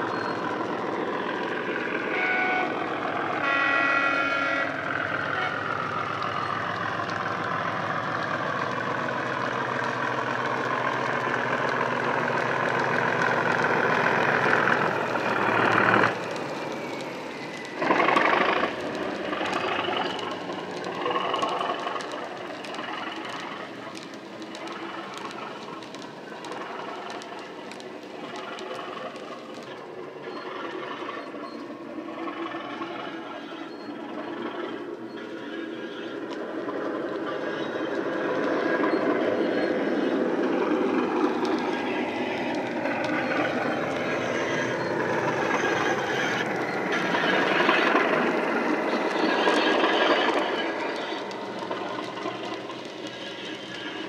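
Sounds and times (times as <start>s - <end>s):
model locomotive engine sound: 0.0s - 54.0s
model train wheels clicking: 0.0s - 54.0s.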